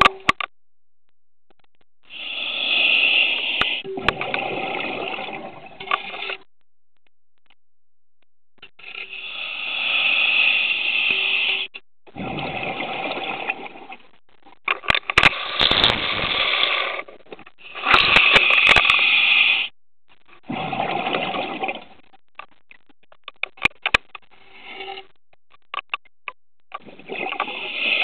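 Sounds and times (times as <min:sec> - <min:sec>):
diver breathing through regulator: 0:02.1 - 0:03.8, 0:09.0 - 0:11.7
exhaled bubbles: 0:02.1 - 0:06.4, 0:12.1 - 0:14.0, 0:20.4 - 0:22.0, 0:26.8 - 0:28.0
sharp clicks: 0:22.3 - 0:24.2, 0:25.3 - 0:26.8.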